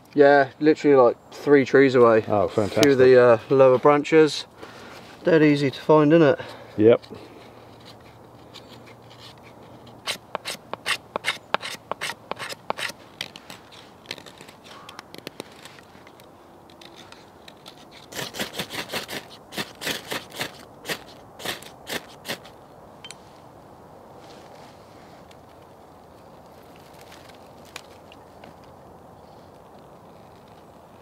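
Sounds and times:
knife scraping wood: 0:07.4 - 0:15.9, 0:16.8 - 0:22.5.

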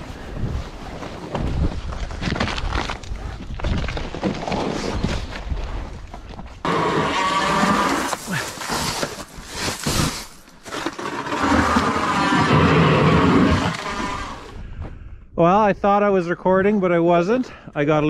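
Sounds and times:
wind: 0:00.0 - 0:18.0
power ice auger drilling: 0:06.6 - 0:14.5.

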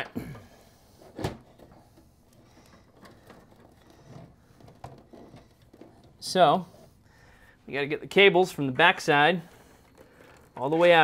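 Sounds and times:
faint scraping and clicks: 0:01.0 - 0:07.2, 0:09.3 - 0:11.0.

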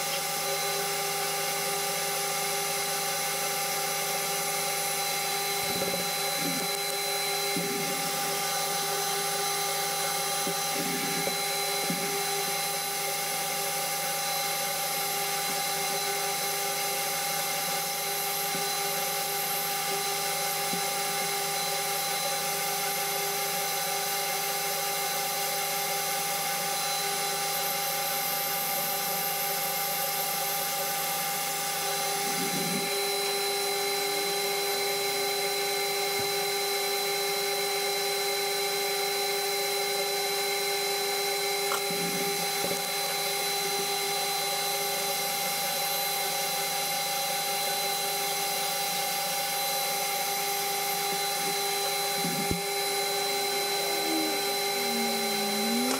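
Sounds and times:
metal lathe motor whining: 0:00.0 - 0:55.9
part being filed: 0:53.5 - 0:55.9.

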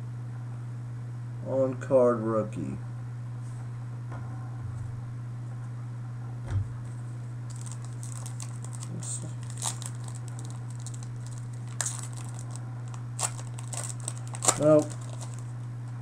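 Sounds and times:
steady low hum: 0:00.0 - 0:16.0
cards rustling and clicking: 0:07.5 - 0:15.6
card wrapper crinkling: 0:07.5 - 0:15.7.

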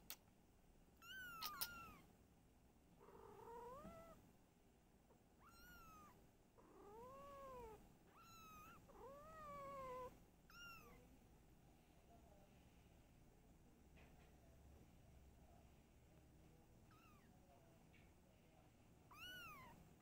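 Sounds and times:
cat meowing: 0:01.0 - 0:02.0, 0:05.4 - 0:11.0, 0:19.1 - 0:19.8
kitten mewing: 0:01.0 - 0:02.0.

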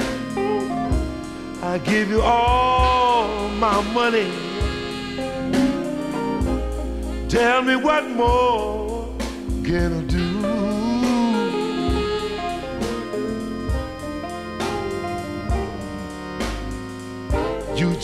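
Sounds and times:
blues background music: 0:00.0 - 0:18.0.

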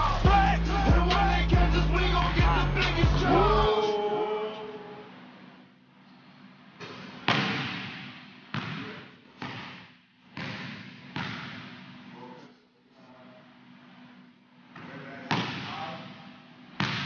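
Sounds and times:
basketball bouncing on hardwood floor: 0:06.9 - 0:09.8.

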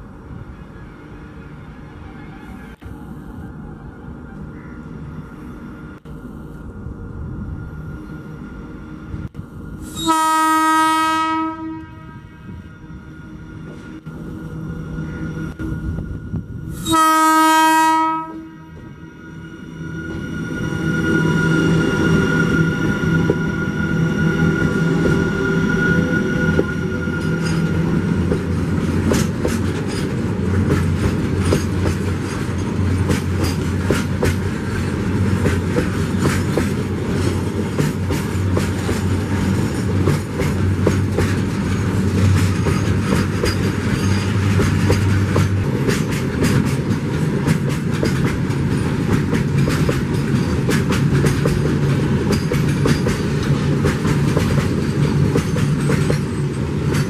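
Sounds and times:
electric locomotive whine: 0:00.0 - 0:57.0
freight wagons rumbling: 0:20.5 - 0:57.0
wheels clacking over rail joints: 0:26.6 - 0:57.0.

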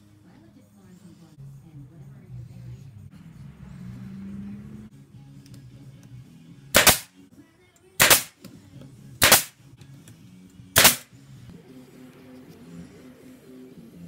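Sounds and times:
nail gun firing into wood: 0:06.8 - 0:07.1, 0:08.0 - 0:08.4, 0:09.2 - 0:09.5, 0:10.8 - 0:11.1.

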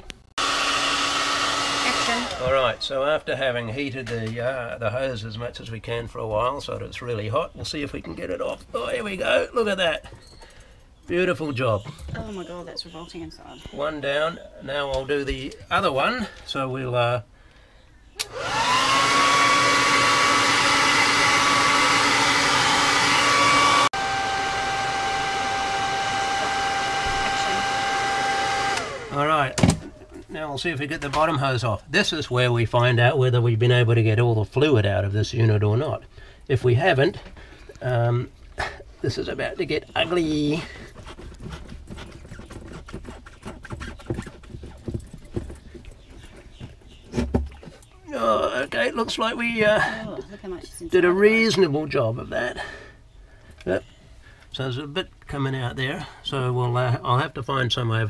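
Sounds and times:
hair dryer whining: 0:00.4 - 0:02.8, 0:18.2 - 0:30.1
hose creaking and rubbing: 0:39.1 - 0:48.0.

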